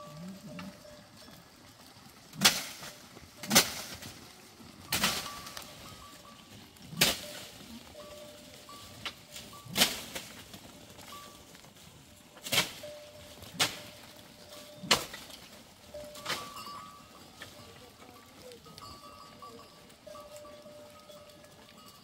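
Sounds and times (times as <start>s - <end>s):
blade chopping tree branches: 2.4s - 4.2s, 4.9s - 5.7s, 6.9s - 7.5s, 9.1s - 10.5s, 12.4s - 14.0s, 14.9s - 15.4s.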